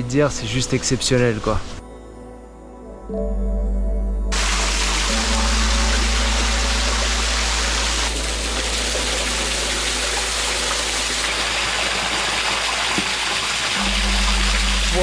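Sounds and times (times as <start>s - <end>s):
deep hum: 1.8s - 12.2s, 13.8s - 15.0s
waterfall splashing on rock: 4.4s - 15.0s.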